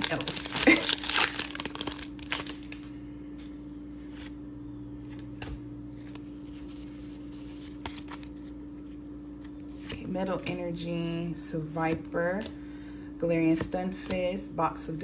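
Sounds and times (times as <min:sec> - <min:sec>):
foil wrapper crinkling: 0:00.0 - 0:03.0
steady low hum: 0:00.0 - 0:15.0.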